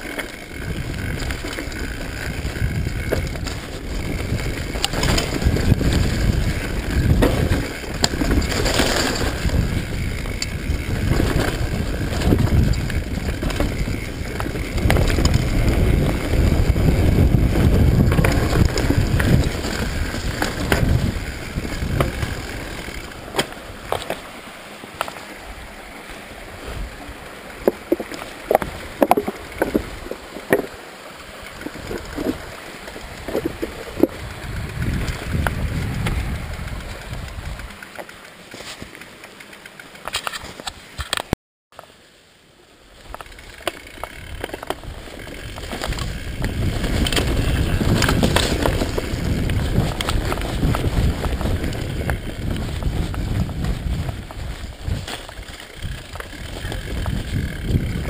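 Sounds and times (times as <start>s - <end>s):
wind on microphone: 0.0s - 24.0s, 31.6s - 37.7s, 44.2s - 58.0s
bike tyres rumbling on dirt: 0.0s - 41.2s, 42.8s - 58.0s
bike rattling: 0.0s - 41.4s, 42.7s - 58.0s.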